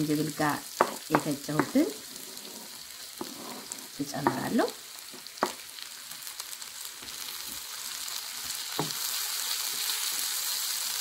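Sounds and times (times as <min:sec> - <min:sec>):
onions sizzling in a skillet: 0:00.0 - 0:11.0
wooden spoon stirring: 0:00.8 - 0:04.5.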